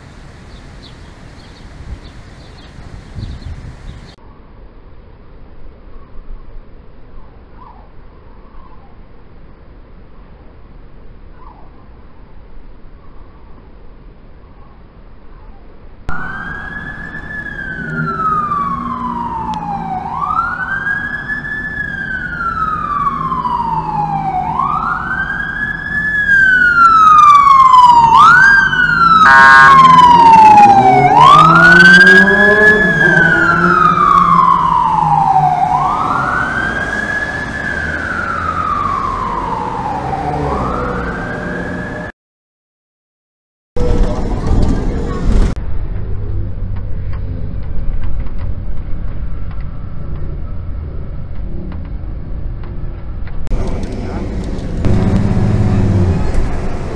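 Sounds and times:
vehicle rumble: 0.0 - 42.1, 43.8 - 56.9
fire engine siren wailing: 16.1 - 42.1, 53.5 - 56.9
horn blast: 54.8 - 56.9.

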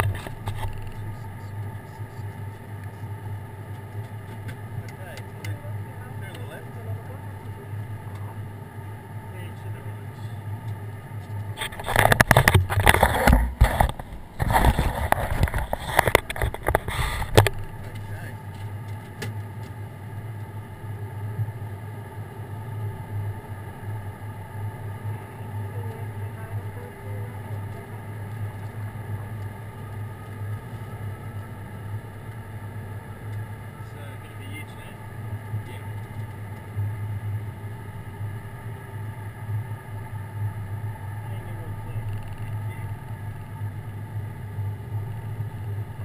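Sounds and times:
microphone handling noise: 0.0 - 2.6, 11.2 - 19.4
aircraft engines humming: 0.0 - 46.0.

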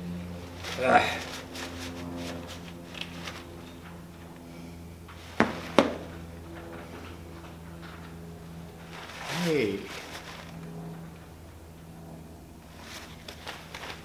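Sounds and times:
low machine hum: 0.0 - 14.0
paper towel rustling on glasses: 0.4 - 3.6, 8.7 - 10.7, 12.7 - 14.0.

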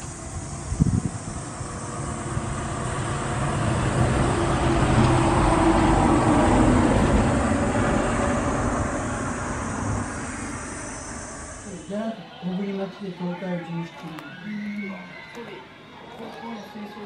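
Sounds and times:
vehicle passing by: 0.0 - 11.8.

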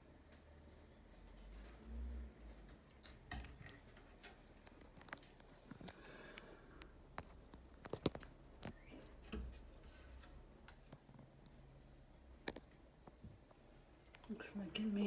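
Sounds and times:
handling clicks and knocks: 7.1 - 9.6.

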